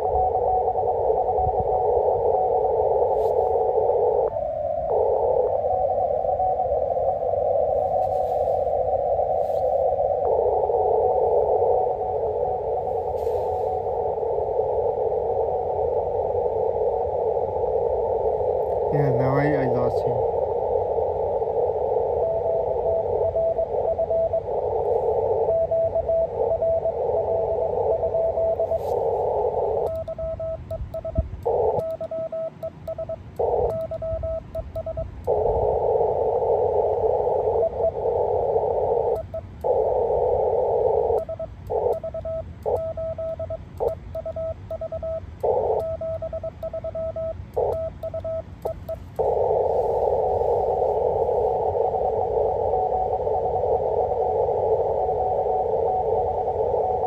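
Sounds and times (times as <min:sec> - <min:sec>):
radio band hiss: 0:00.0 - 0:25.5, 0:26.2 - 0:30.0, 0:31.4 - 0:32.0, 0:35.2 - 0:41.9, 0:47.4 - 0:57.0
morse code tone: 0:21.9 - 0:57.0.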